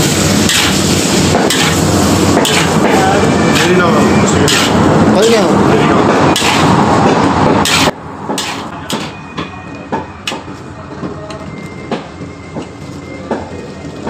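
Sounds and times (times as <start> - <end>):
loud rush of noise: 0.0 - 8.8
metal spatula scraping a wok: 0.4 - 2.9, 3.5 - 4.9, 6.3 - 6.8, 7.6 - 9.2.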